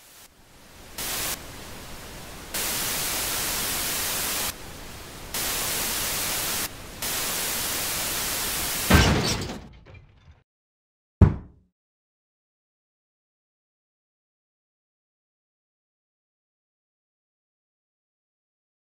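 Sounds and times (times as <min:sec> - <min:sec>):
television static hiss: 0:00.0 - 0:08.9.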